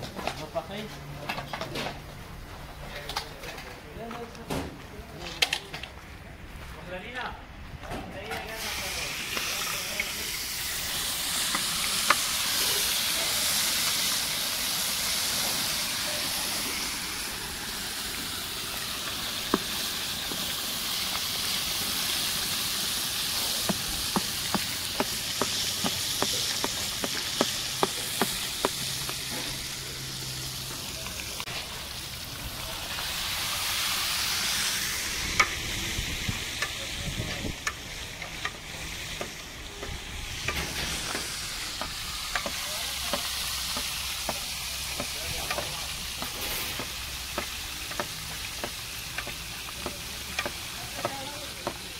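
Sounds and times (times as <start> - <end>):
oil sizzling in a pot: 8.5 - 51.9.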